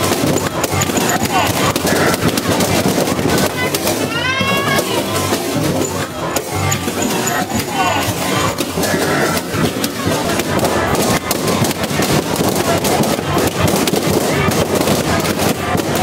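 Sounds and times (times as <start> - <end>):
balloons popping: 0.0 - 16.0.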